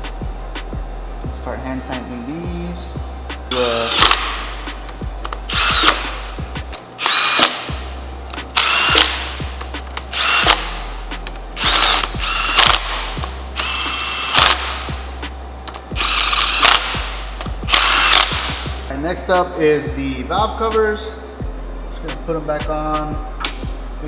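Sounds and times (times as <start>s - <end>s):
cordless power tool whirring: 3.5s - 4.5s, 5.5s - 6.4s, 7.0s - 7.8s, 8.6s - 9.4s, 10.1s - 10.9s, 11.6s - 14.9s, 16.0s - 18.6s.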